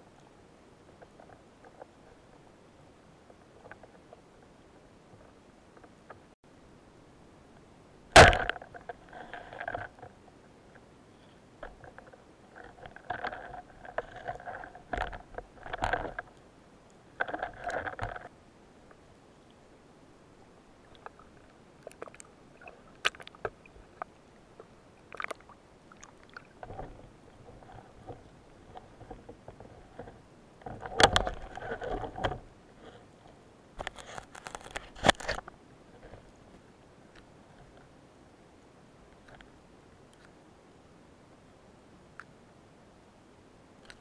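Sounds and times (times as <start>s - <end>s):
sharp underwater crack: 8.1s - 8.9s
underwater bubbling and gurgling: 20.7s - 33.0s.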